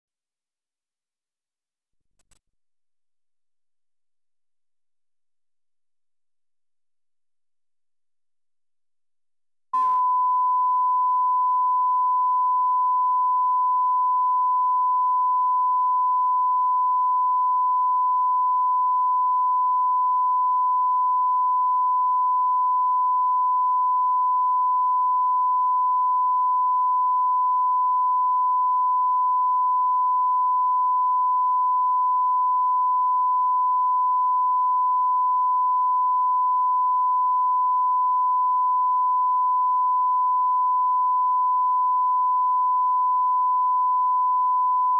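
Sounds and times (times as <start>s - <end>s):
steady sine-wave tone: 9.8s - 44.9s.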